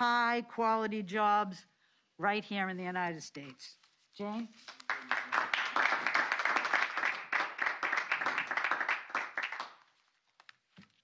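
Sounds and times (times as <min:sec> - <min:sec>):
group applause: 0:04.6 - 0:10.0.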